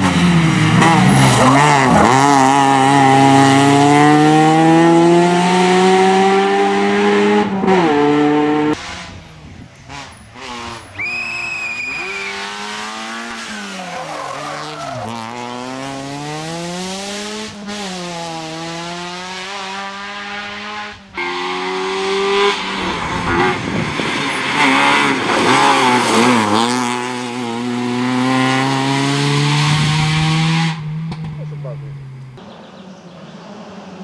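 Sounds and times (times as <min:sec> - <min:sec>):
rally car engine revving: 0:00.0 - 0:34.0
tyre squeal: 0:10.9 - 0:12.7, 0:13.4 - 0:15.2.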